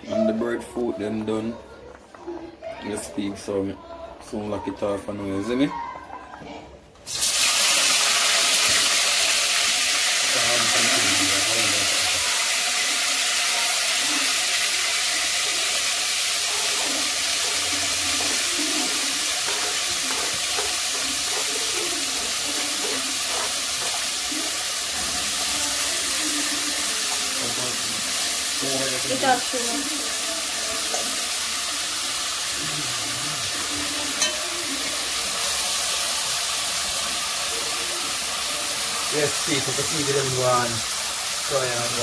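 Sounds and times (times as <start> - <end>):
vegetables sizzling in hot oil: 7.0 - 42.0.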